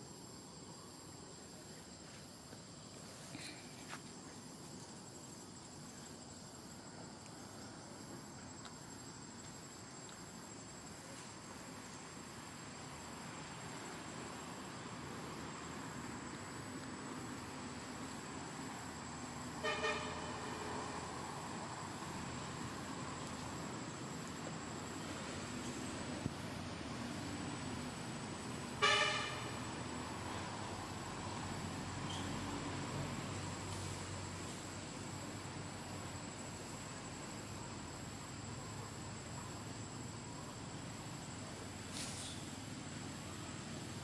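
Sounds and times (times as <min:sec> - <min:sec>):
high insect whine: 0:00.0 - 0:44.0
road traffic rumble: 0:00.0 - 0:44.0
vehicle horn toot: 0:19.6 - 0:20.5, 0:28.8 - 0:29.6.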